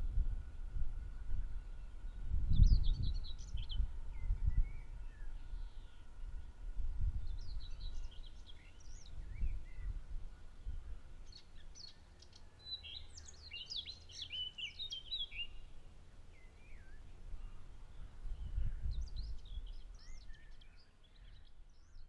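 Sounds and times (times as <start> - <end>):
low uneven rumble: 0.0 - 12.1
small birds chirping: 1.2 - 6.6, 7.2 - 22.0.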